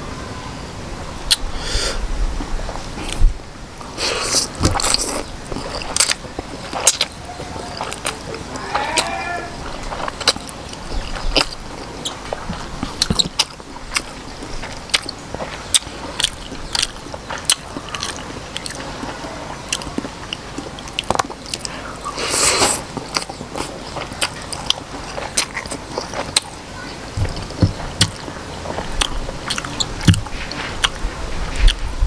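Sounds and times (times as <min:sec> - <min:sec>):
noisy slurp: 0:02.7 - 0:31.8
wet mouth smacks while chewing: 0:04.2 - 0:07.1, 0:09.8 - 0:12.2, 0:22.3 - 0:26.5, 0:27.2 - 0:31.0.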